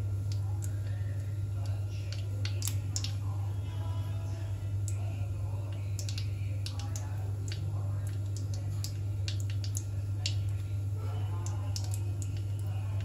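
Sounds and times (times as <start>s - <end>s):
spices crackling in hot oil: 0.0s - 3.2s, 5.8s - 13.0s
steady low hum: 0.0s - 13.0s
oil popping and spitting: 6.0s - 10.5s.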